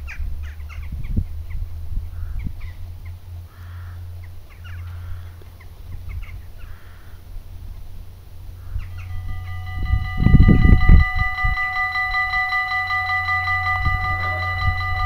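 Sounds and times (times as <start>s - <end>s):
wind rumbling on microphone: 0.0s - 3.5s, 4.1s - 15.0s
harsh caw-like bird calls: 3.5s - 7.2s
birds chirping: 8.6s - 15.0s.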